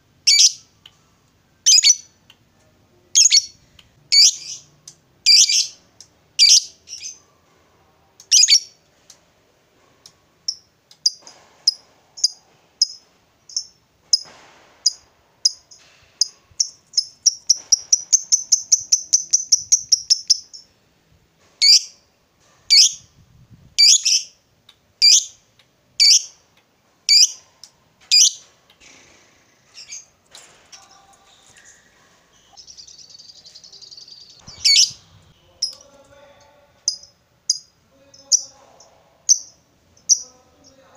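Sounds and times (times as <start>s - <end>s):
lovebird shrill calls and trill: 0.3s - 0.6s, 1.6s - 2.1s, 3.2s - 4.7s, 5.3s - 5.8s, 6.4s - 7.2s, 8.3s - 8.7s, 16.2s - 20.6s, 21.6s - 21.9s, 22.7s - 23.0s, 23.8s - 24.4s, 26.0s - 26.4s, 27.1s - 27.4s, 28.1s - 28.4s, 32.6s - 35.8s.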